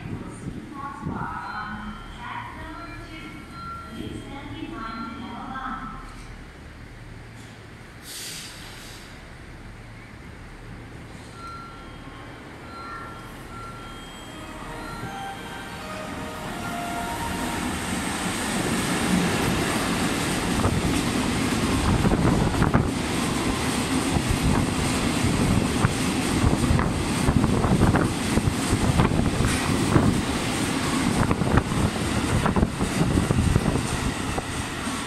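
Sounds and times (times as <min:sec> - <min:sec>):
train wheels rumbling on rail: 0:15.8 - 0:35.0.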